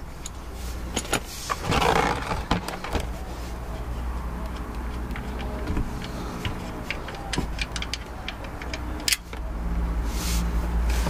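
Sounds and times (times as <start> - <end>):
wrench clicking and scraping: 3.8 - 9.4.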